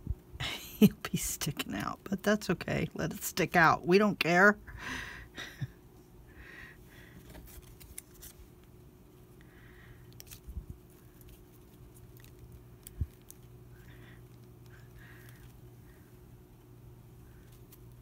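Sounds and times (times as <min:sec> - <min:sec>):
faint steady hum: 0:00.0 - 0:18.0
paper rustling: 0:07.2 - 0:08.7.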